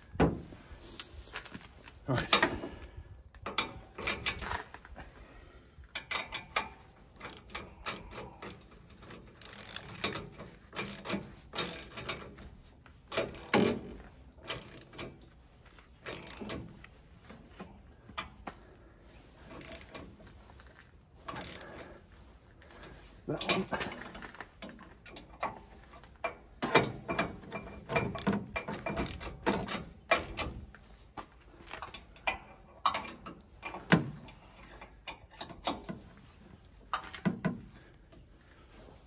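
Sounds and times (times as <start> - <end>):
socket ratchet wrench clicking: 7.2 - 8.6, 9.4 - 10.2, 10.8 - 12.2, 13.2 - 13.7, 14.5 - 15.0, 16.1 - 16.6, 19.6 - 20.0, 21.3 - 21.7.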